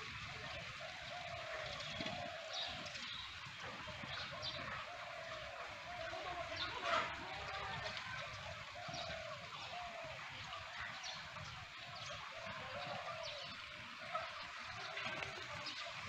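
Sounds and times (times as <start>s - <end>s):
faint outdoor background noise: 0.0s - 16.0s
birds chirping: 0.2s - 16.0s.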